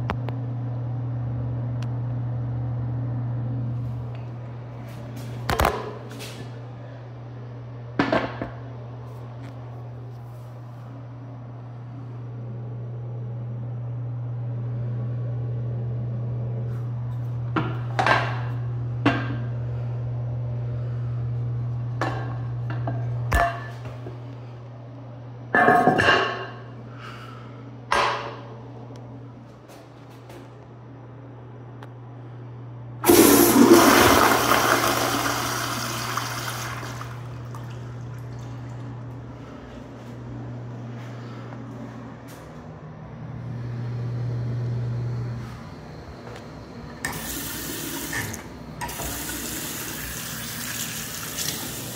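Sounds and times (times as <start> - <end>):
steady low hum: 0.0 - 51.9
toilet flushing: 33.0 - 39.2, 47.0 - 51.9.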